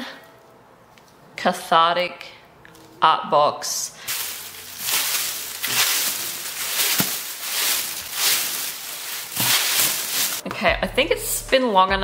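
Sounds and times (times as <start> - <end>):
paper filler crinkling: 4.1 - 10.4.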